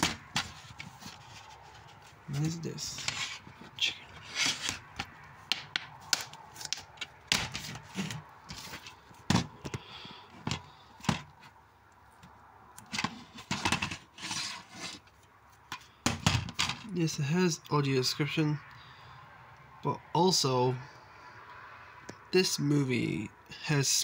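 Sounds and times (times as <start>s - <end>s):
plastic cases clicking and knocking: 0.0s - 1.2s, 2.3s - 11.4s, 12.8s - 14.1s, 15.7s - 16.9s
plastic cases rubbing and scraping: 0.0s - 11.6s, 12.8s - 16.9s.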